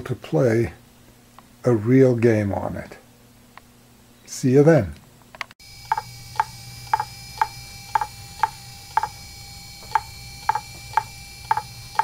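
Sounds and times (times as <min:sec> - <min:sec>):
hard drive platters humming: 0:05.6 - 0:12.0
hard drive head clicking: 0:05.8 - 0:09.2, 0:09.8 - 0:12.0.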